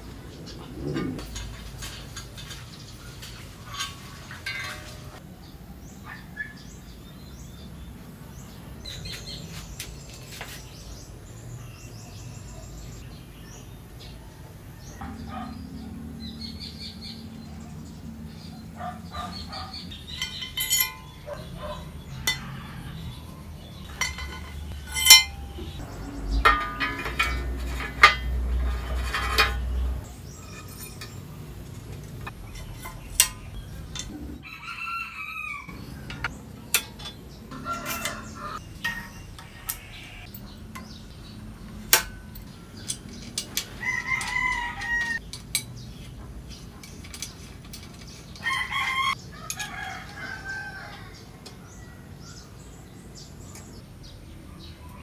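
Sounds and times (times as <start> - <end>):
birds calling: 0.0 - 55.0
metal bicycle parts clinking: 1.0 - 5.2, 18.8 - 34.4, 35.7 - 50.5.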